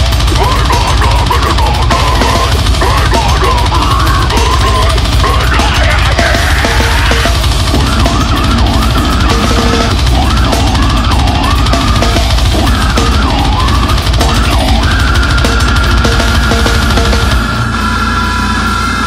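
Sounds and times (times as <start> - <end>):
drums: 0.0 - 19.0
loud metal song: 0.0 - 19.0.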